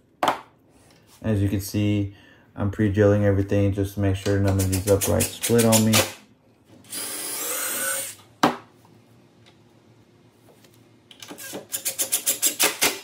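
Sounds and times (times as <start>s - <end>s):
cordless drill drilling wood: 6.9s - 8.2s.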